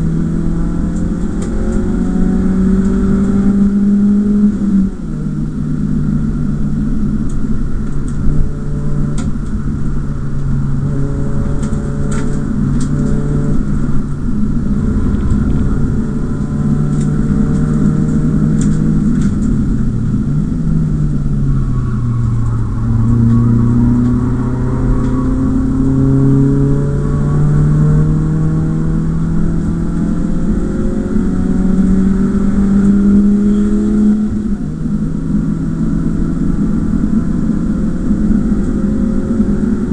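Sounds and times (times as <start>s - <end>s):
car engine revving in cabin: 0.0s - 39.9s.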